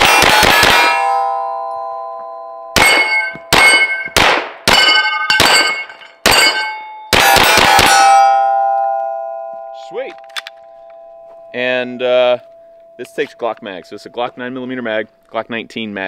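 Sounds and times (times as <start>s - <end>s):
gunshots with metallic clang: 0.0s - 2.2s, 2.8s - 9.2s
steel target ringing: 0.0s - 15.2s.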